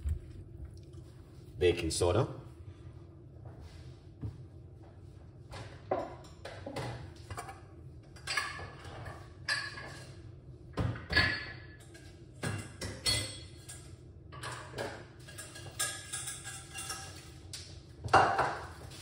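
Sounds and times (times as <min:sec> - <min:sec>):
utensils clinking and knocking: 0:11.1 - 0:17.3.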